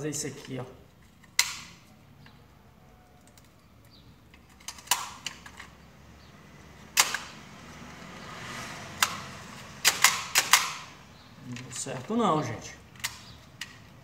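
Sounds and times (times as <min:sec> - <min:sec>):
labelling gun plastic clicks: 0:00.4 - 0:02.4, 0:03.2 - 0:05.8, 0:06.9 - 0:07.4, 0:12.9 - 0:14.0.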